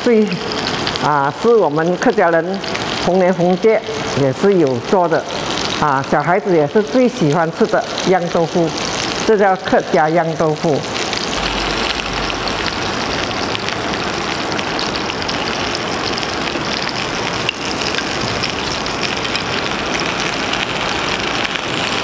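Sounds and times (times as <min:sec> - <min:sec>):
food sizzling in oil: 0:00.0 - 0:22.0.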